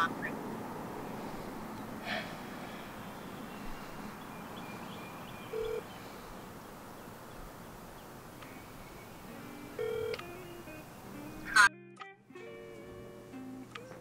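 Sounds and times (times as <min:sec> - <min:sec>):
low steady hiss: 0:00.0 - 0:11.6, 0:12.4 - 0:14.0
faint bird chirps: 0:02.5 - 0:09.6
smartphone beep: 0:05.5 - 0:05.8, 0:09.8 - 0:10.2.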